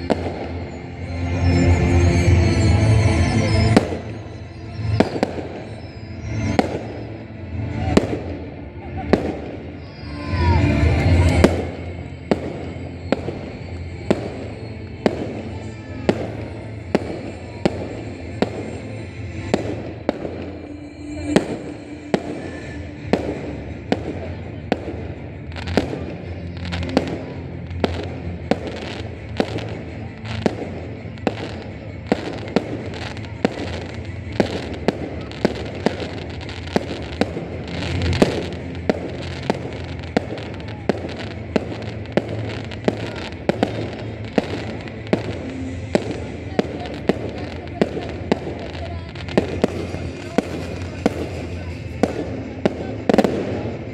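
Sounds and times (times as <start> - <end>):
fireworks bangs: 0.0 - 53.9.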